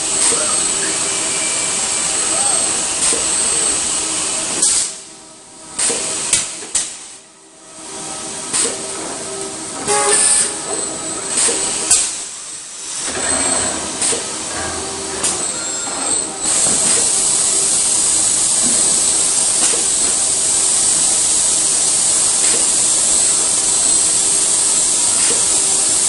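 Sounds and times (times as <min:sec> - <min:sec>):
compressed-air hiss: 0:00.0 - 0:05.1, 0:05.7 - 0:07.2, 0:07.8 - 0:26.0
steady machinery noise: 0:00.0 - 0:26.0
pneumatic clamps clunking: 0:05.8 - 0:07.0, 0:08.5 - 0:12.2, 0:12.9 - 0:20.2, 0:22.4 - 0:23.0, 0:25.1 - 0:25.8.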